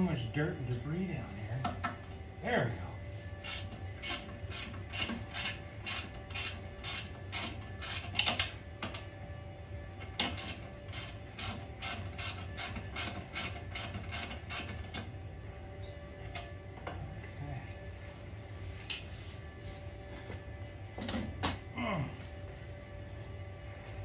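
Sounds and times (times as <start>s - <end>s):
ratchet wrench clicking: 3.4s - 8.3s.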